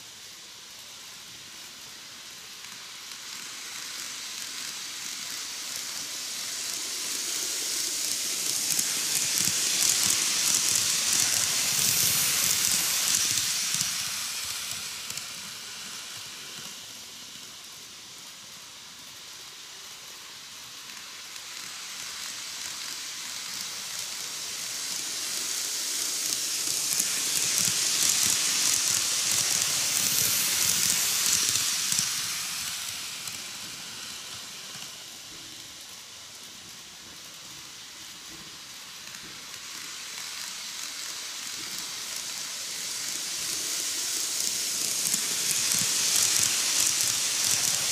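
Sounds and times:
model train running on track: 0.0s - 47.9s.

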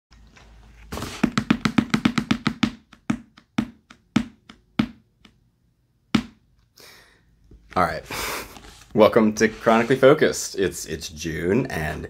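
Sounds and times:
hands drumming on cardboard box: 1.0s - 5.3s.

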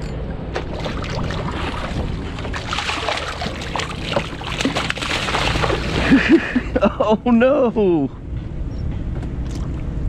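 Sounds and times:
wind rumble on microphone: 0.0s - 6.8s
fish thrashing and splashing: 0.6s - 6.6s.

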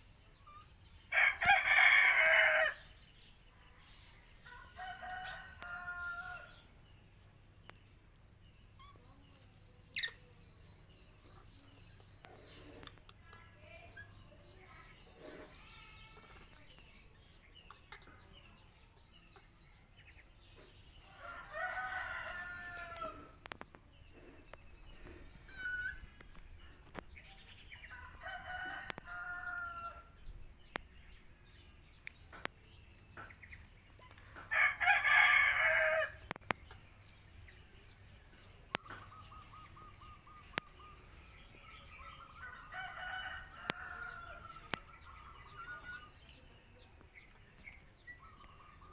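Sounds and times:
roosters crowing: 1.1s - 2.9s, 4.5s - 6.7s, 21.1s - 23.4s, 27.8s - 30.2s, 34.4s - 36.4s, 42.2s - 46.2s.

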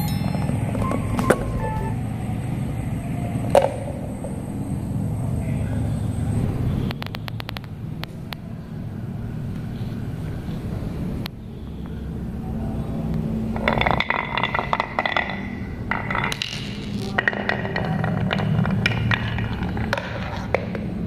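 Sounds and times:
marble rattling and clicking: 13.5s - 21.0s
marble rolling on wooden run: 13.5s - 21.0s.

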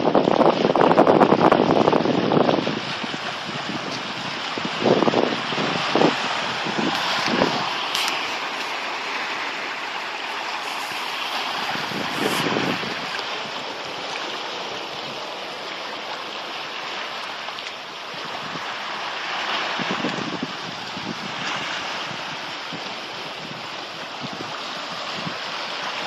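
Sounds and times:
waves washing over rocky shore: 0.0s - 26.0s.

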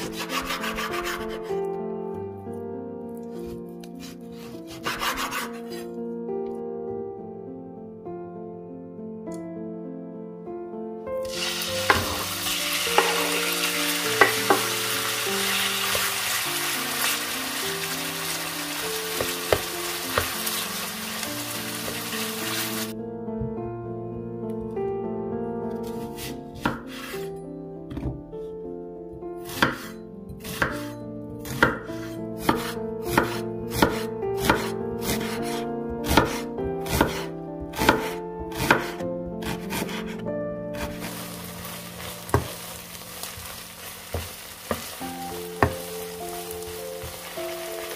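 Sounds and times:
knife chopping on wooden board: 3.4s - 5.9s, 11.9s - 12.2s, 14.2s - 14.8s, 19.2s - 20.3s, 25.9s - 27.2s, 29.4s - 30.8s, 31.4s - 40.2s, 42.3s - 42.6s
meat sizzling in hot oil: 11.2s - 22.9s, 40.9s - 47.9s.

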